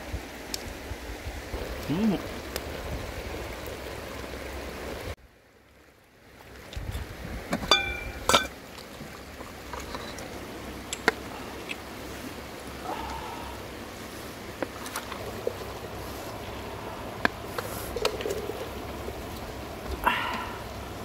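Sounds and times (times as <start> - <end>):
background hiss: 0.0 - 21.0
metal pot lid clanking: 7.6 - 8.6.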